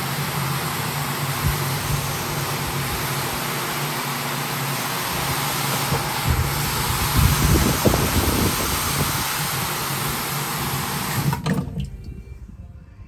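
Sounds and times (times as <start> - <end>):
floor scrubber motor hum: 0.0 - 11.4
wet scrubbing hiss: 1.5 - 11.3.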